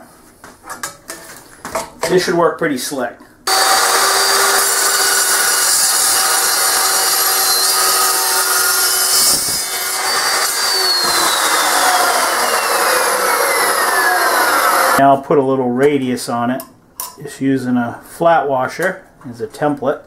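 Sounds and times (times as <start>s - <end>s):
chop saw cutting steel: 3.5s - 15.0s.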